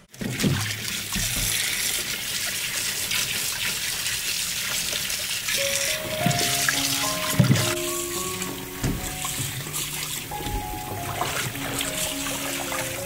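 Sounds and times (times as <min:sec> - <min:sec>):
tap water running into a sink: 0:00.1 - 0:13.0
soft background music: 0:05.6 - 0:13.0.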